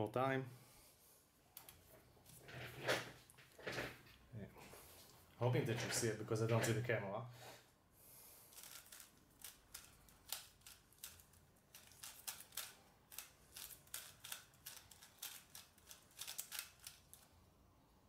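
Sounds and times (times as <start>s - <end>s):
speed cube clicking: 8.5s - 17.3s.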